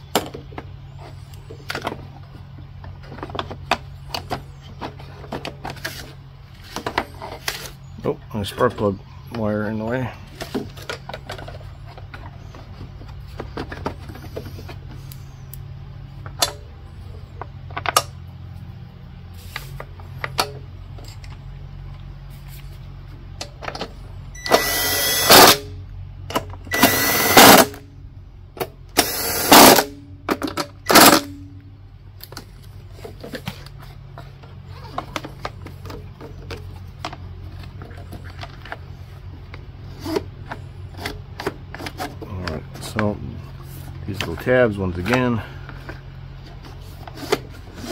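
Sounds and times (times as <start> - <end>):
cordless drill driving screws: 24.4 - 25.6, 26.7 - 27.8, 29.0 - 29.9.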